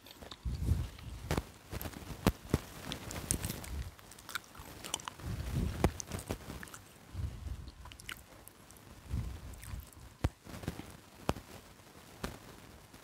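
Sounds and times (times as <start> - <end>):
chewing fried chicken: 0.0 - 1.2, 2.7 - 10.0.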